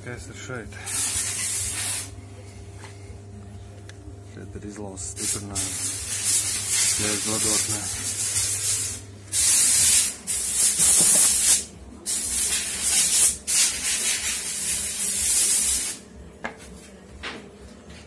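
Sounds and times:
loud hissing bursts: 0:00.8 - 0:02.1, 0:05.2 - 0:16.0.

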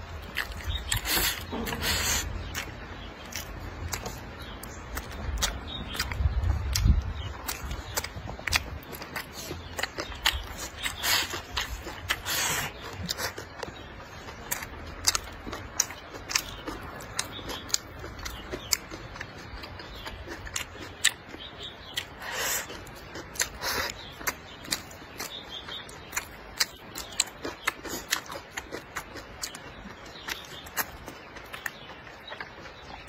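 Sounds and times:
wet chewing and lip smacks: 0:00.0 - 0:33.0
slurping: 0:00.3 - 0:02.7, 0:09.2 - 0:13.8.

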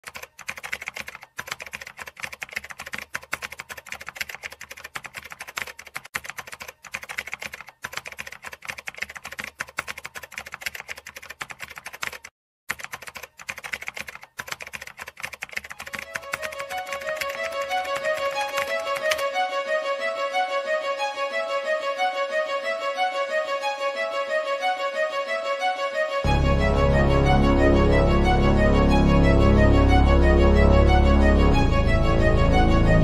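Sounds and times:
keyboard typing clicks: 0:00.0 - 0:19.3.

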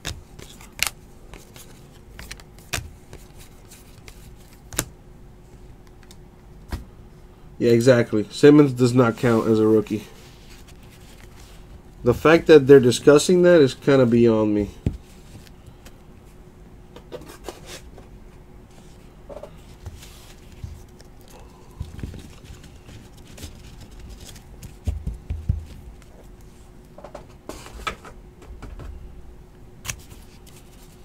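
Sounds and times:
faint steady hum: 0:00.0 - 0:31.0
card stacks thumping on mat: 0:14.6 - 0:15.1, 0:24.2 - 0:26.1.

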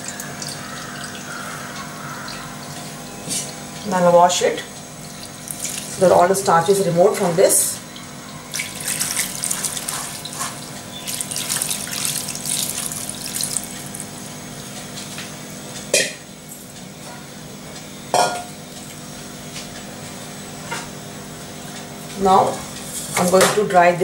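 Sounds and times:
water splashing in colander: 0:05.0 - 0:06.8, 0:08.5 - 0:14.3.

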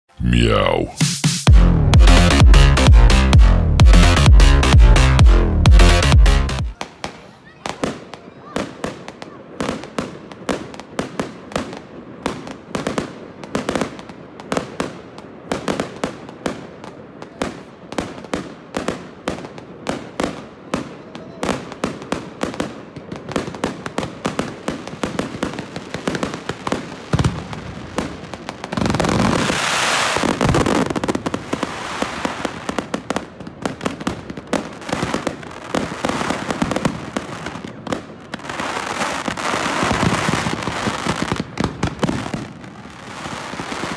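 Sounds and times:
fireworks crackling: 0:06.7 - 0:43.9.

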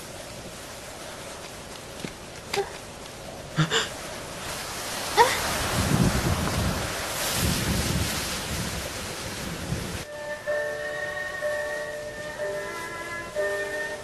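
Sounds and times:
wind gusting: 0:00.0 - 0:14.0
rising whistle: 0:10.1 - 0:14.0.

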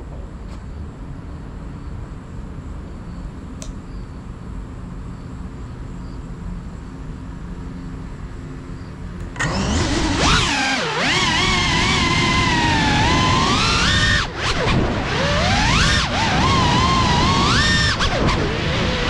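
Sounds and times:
single click: 0:03.6 - 0:03.8
drone motors whining: 0:09.2 - 0:19.0.

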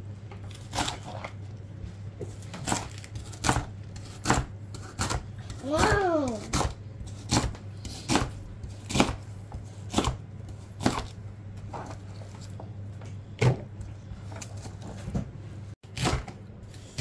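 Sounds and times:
steady low hum: 0:00.0 - 0:17.0
knife chopping on plastic cutting board: 0:02.2 - 0:11.2, 0:15.9 - 0:16.4.

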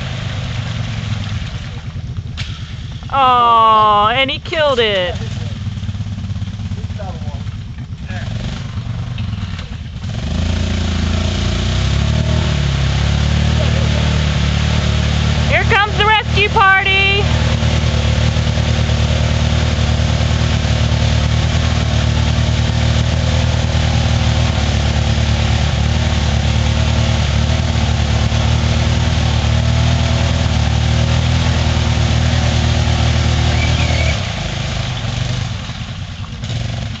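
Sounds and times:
quad engine running: 0:00.0 - 0:37.0
quad struggling through mud: 0:00.0 - 0:37.0.

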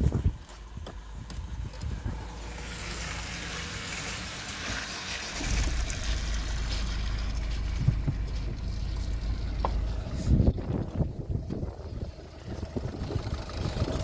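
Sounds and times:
diesel engine starting and idling: 0:00.6 - 0:14.0.

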